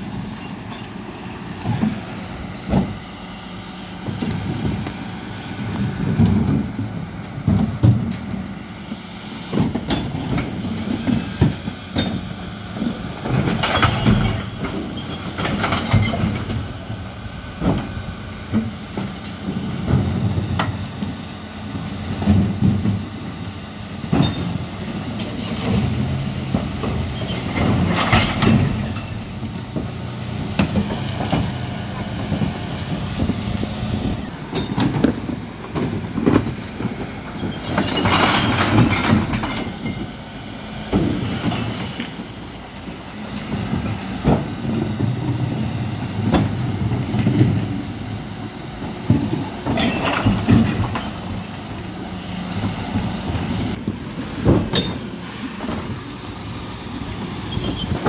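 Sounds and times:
refuse lorry engine running: 0.0s - 58.0s
bins knocking and clattering: 25.3s - 31.6s, 34.4s - 40.1s, 48.9s - 51.5s, 53.8s - 56.0s.

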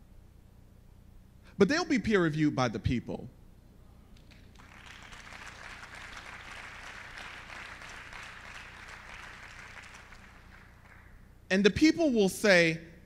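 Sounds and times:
audience applauding: 4.2s - 11.2s.

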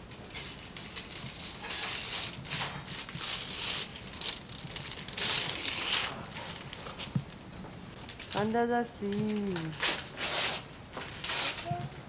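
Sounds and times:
wrapping paper tearing and crumpling: 0.3s - 7.0s, 9.3s - 11.7s.

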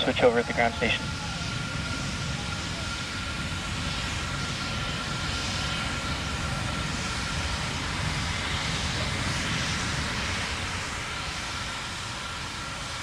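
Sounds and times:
rocket engines rumbling: 0.0s - 13.0s.

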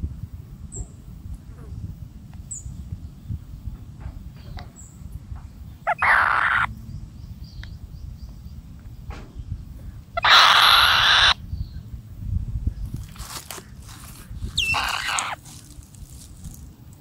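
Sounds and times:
low rumble: 0.0s - 10.2s, 11.3s - 17.0s
beak and feather clicks and rustles: 12.9s - 17.0s
loud hissing rustle: 12.9s - 17.0s.

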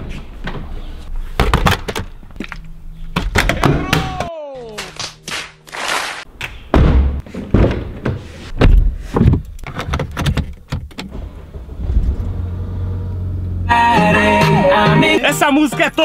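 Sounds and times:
knocks and thuds: 6.7s - 10.9s
car engine starting and idling: 10.8s - 14.8s.

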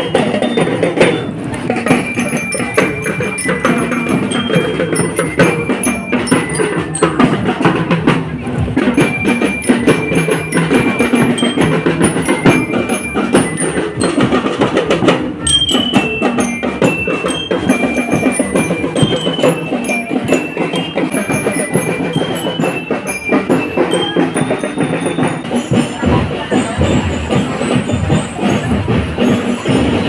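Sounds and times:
bell lyres playing melody: 0.0s - 30.0s
marching drums: 0.0s - 30.0s.

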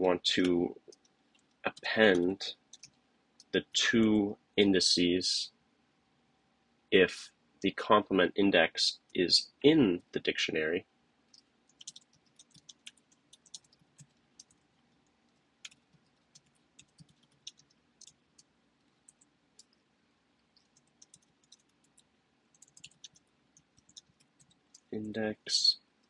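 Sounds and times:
faint keyboard keystrokes: 11.3s - 14.6s, 20.6s - 24.9s.

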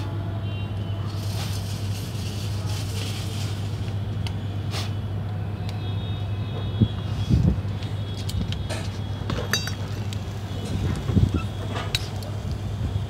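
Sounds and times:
metal tongs clicking on coals: 11.8s - 12.4s.

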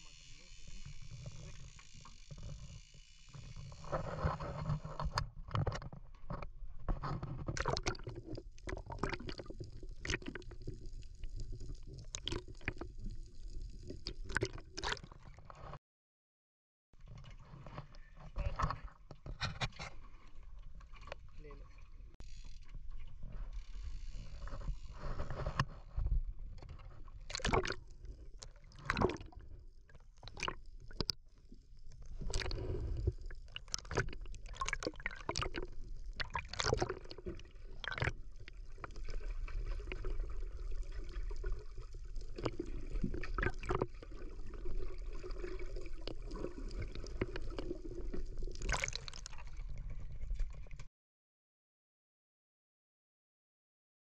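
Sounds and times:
muffled underwater sloshing: 17.0s - 50.9s.

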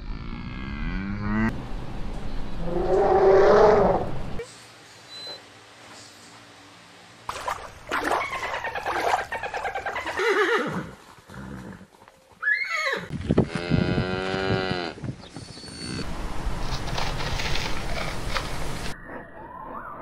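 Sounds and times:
cow mooing: 0.0s - 1.5s.

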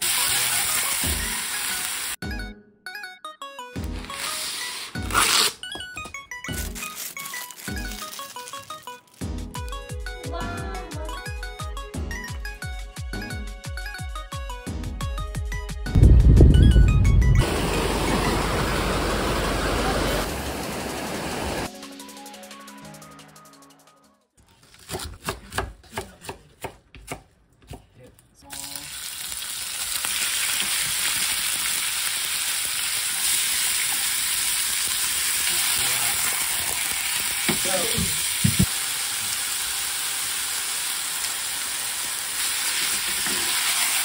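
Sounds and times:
beef sizzling in a frying pan: 0.0s - 2.2s, 28.5s - 44.0s.

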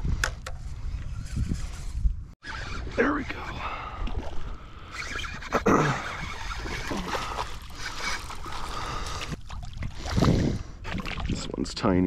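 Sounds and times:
water splashing and sloshing: 3.3s - 11.7s.

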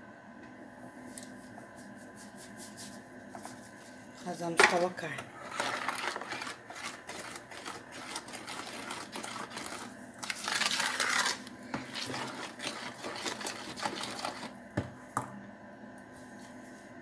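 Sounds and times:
spoon scraping a plastic bowl: 5.2s - 14.6s.

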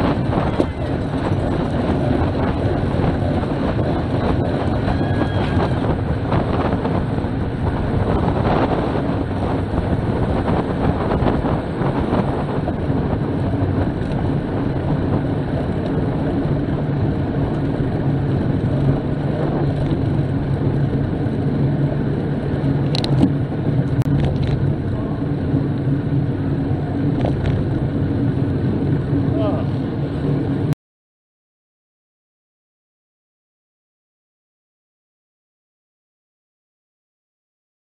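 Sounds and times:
bike tyres humming on tarmac: 0.0s - 30.7s
wind rushing over microphone: 0.0s - 30.8s.

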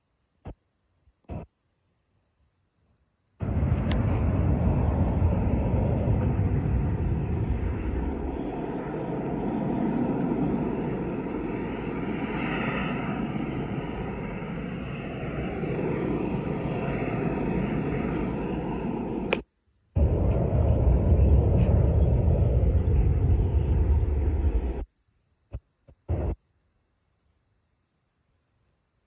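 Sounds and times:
faint steady whine: 0.0s - 29.0s
jet engine roar: 1.3s - 1.5s, 3.4s - 24.9s, 26.1s - 26.4s.

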